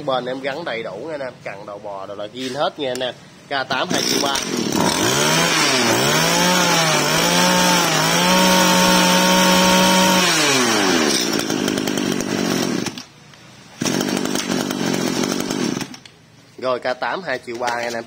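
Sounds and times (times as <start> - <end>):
brush-cutter engine revving: 3.8 - 13.1, 13.8 - 16.1.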